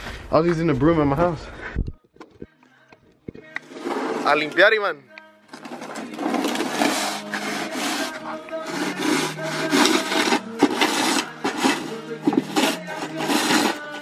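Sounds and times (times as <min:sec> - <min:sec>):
shovel scraping snow off pavement: 0:05.8 - 0:14.0.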